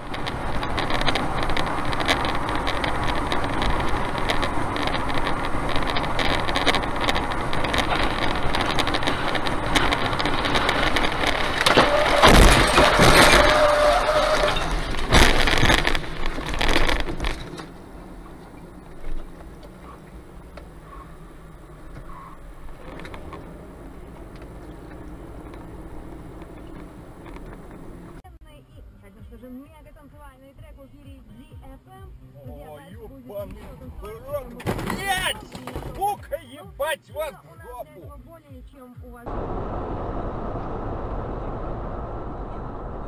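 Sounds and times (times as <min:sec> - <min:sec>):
loud crashing impacts: 0:00.0 - 0:17.8
road and wind noise in car: 0:00.0 - 0:43.0
low hum: 0:39.3 - 0:43.0.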